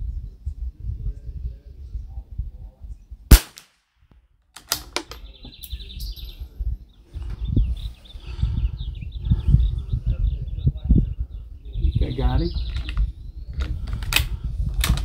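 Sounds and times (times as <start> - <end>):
rifle shot: 3.3 - 3.9
bird chirping in a trill: 5.2 - 9.7.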